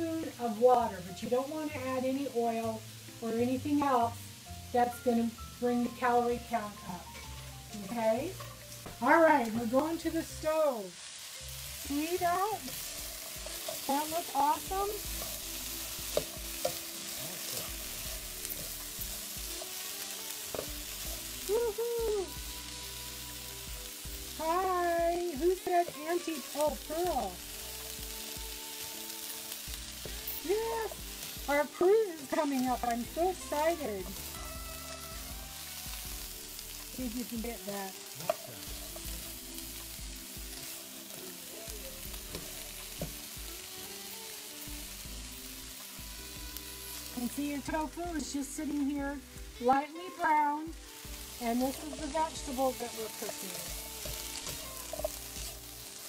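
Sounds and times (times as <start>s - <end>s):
vegetables sizzling in frying pan: 0.0s - 56.0s
spatula stirring vegetables: 0.2s - 56.0s
spatula tapping pan: 12.7s - 19.7s, 53.2s - 55.5s.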